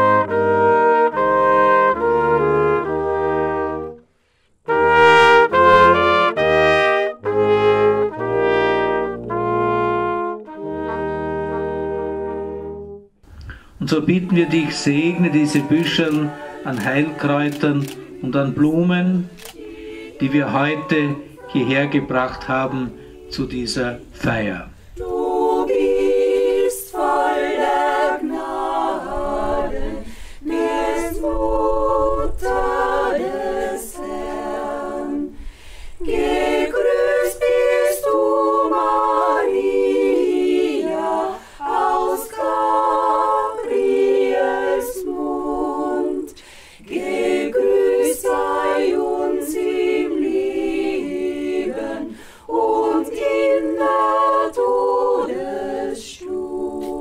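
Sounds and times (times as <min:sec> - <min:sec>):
women's choir singing a cappella: 0:13.9 - 0:57.0.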